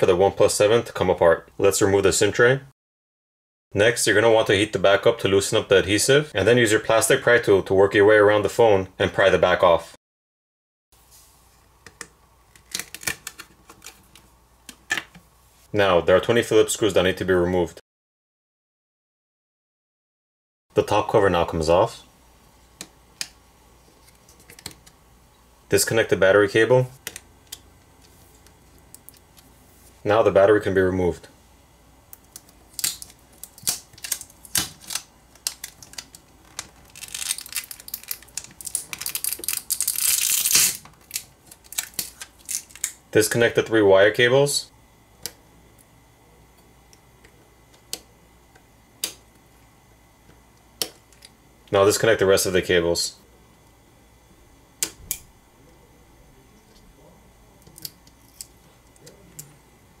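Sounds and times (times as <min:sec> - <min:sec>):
adhesive crackling: 0:32.2 - 0:43.0.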